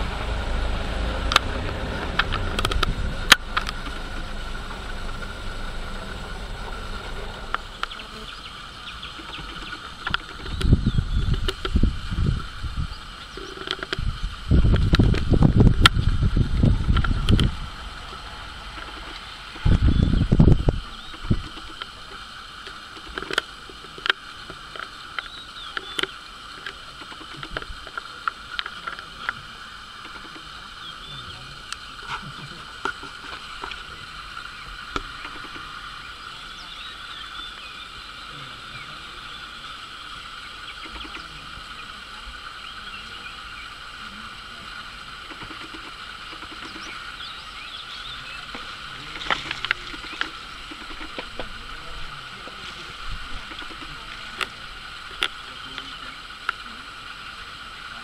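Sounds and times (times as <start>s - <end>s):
loud low rumbling bursts: 0.0s - 22.6s
insect buzzing: 0.0s - 58.0s
faint clicks: 1.2s - 4.3s, 9.0s - 11.8s, 21.1s - 30.6s, 40.7s - 41.7s, 45.2s - 47.2s, 48.4s - 51.7s, 52.4s - 56.7s
bird chirps: 5.4s - 11.7s, 18.0s - 21.9s, 25.0s - 26.4s, 33.3s - 42.0s, 45.3s - 51.2s.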